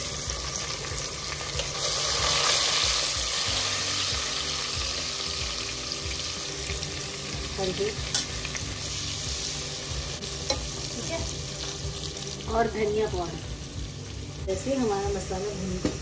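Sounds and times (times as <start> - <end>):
paste sizzling in hot oil: 0.0 - 12.7.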